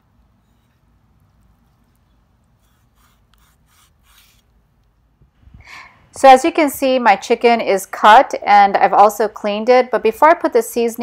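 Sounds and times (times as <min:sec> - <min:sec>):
soft rubbing: 0:00.3 - 0:04.6.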